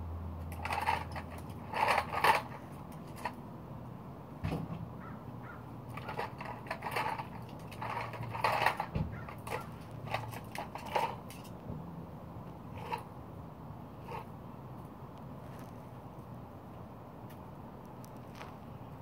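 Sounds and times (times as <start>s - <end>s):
plastic toy truck clattering on concrete: 0.4s - 3.4s, 5.9s - 11.6s, 12.7s - 13.1s, 14.0s - 14.3s.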